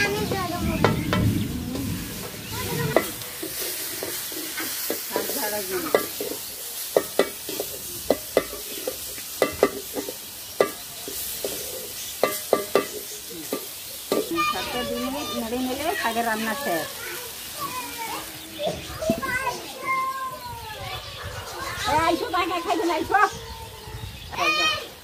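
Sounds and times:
food sizzling: 0:00.0 - 0:25.0
metal spatula scraping a wok: 0:02.0 - 0:14.4.

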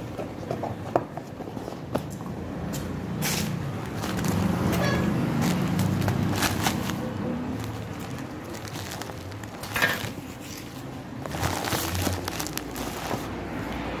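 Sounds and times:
packaging crinkling: 0:03.7 - 0:13.5.

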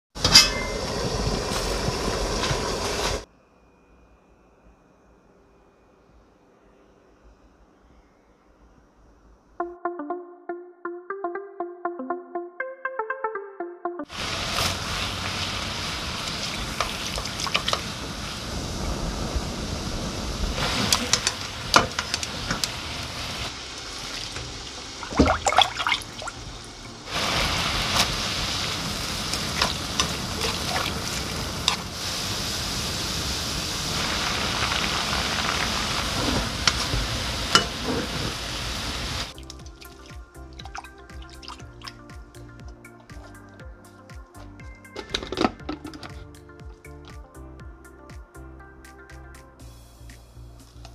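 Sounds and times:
water running from tap: 0:14.1 - 0:18.5, 0:20.6 - 0:32.0.

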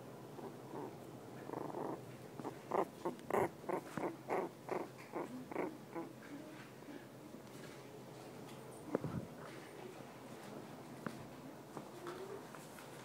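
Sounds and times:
puppy grunting: 0:00.4 - 0:06.2.

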